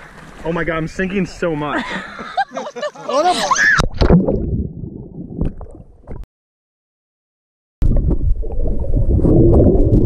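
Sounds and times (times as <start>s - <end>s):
muffled underwater rumble: 7.8s - 10.0s.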